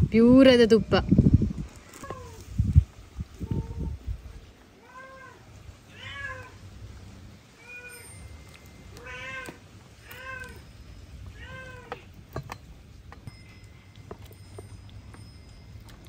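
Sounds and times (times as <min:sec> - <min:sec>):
cat meowing: 0:04.8 - 0:06.6, 0:08.9 - 0:10.6, 0:11.3 - 0:12.1.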